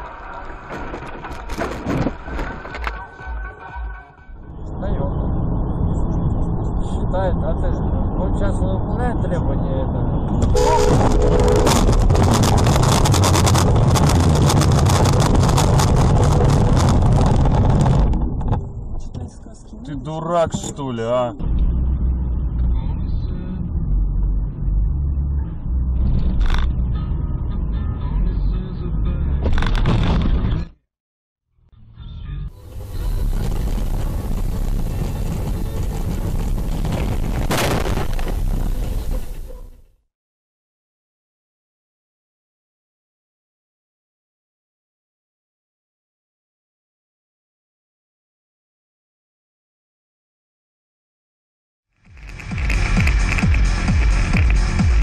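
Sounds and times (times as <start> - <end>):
road noise: 0.0 - 30.7, 31.8 - 40.0, 52.0 - 55.0
car driving at speed: 4.5 - 19.8, 20.4 - 29.5, 32.6 - 39.7, 52.1 - 55.0
wind buffeting microphone: 10.3 - 19.3, 32.7 - 39.6.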